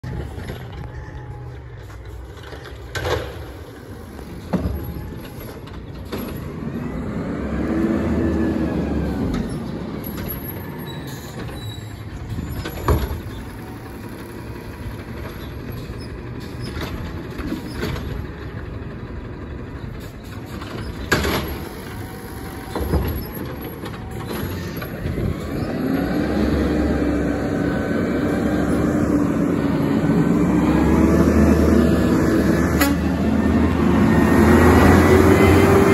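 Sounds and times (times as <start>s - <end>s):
diesel engine revving: 0.0s - 35.9s
carts banging: 20.1s - 35.9s.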